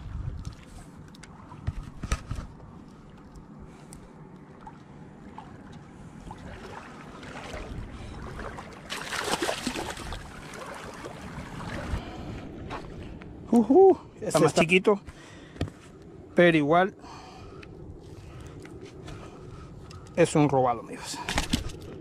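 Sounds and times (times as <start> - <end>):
fish splashing at water surface: 8.3 - 12.0.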